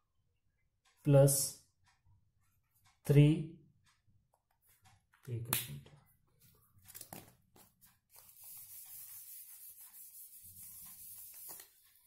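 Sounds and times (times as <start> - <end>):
eraser scrubbing whiteboard: 8.1 - 12.0.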